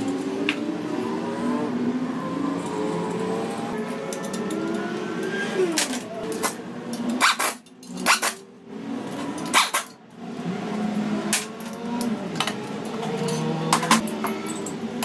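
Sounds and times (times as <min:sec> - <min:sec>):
metal hand tools clinking: 0:05.8 - 0:08.4, 0:11.4 - 0:14.8.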